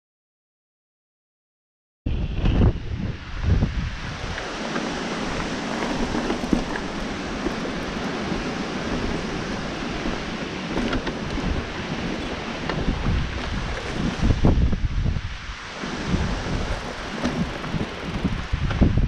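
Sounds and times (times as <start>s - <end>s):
wind buffeting microphone: 2.1s - 19.0s
bicycle tyres on gravel: 3.4s - 19.0s
bike knocking on rock: 5.4s - 14.4s, 16.7s - 18.9s.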